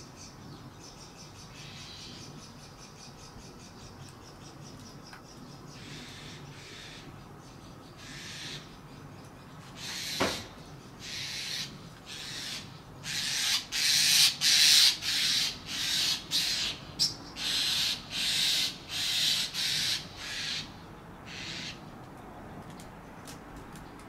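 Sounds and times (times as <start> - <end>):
harsh scratchy bird calls: 7.9 - 21.9.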